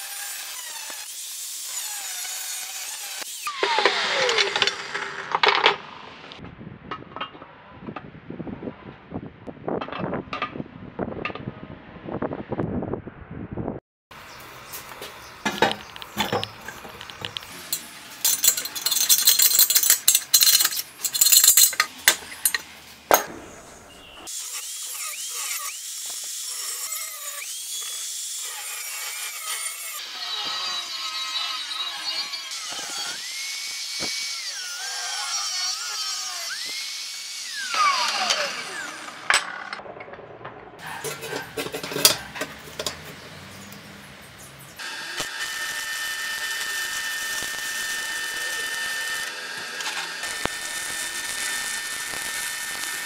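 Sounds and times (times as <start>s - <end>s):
angle grinder cutting steel: 0.0s - 6.4s, 15.4s - 39.8s, 40.8s - 43.8s, 44.7s - 53.0s
metal clanks and knocks: 15.4s - 23.7s, 39.2s - 43.3s
metal clinks: 17.7s - 22.6s.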